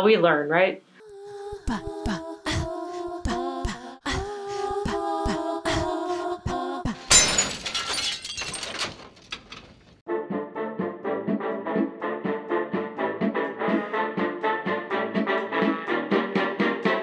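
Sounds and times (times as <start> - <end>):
a cappella vocal melody: 1.0 - 7.1, 10.3 - 17.0.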